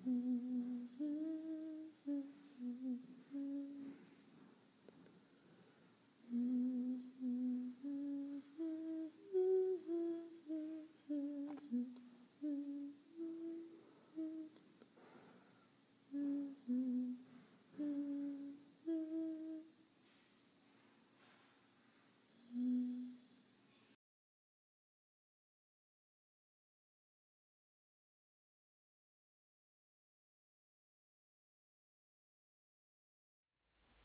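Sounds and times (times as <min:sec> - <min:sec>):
person humming a slow tune: 0:00.0 - 0:04.5, 0:06.2 - 0:14.7, 0:16.1 - 0:19.8, 0:22.3 - 0:23.3.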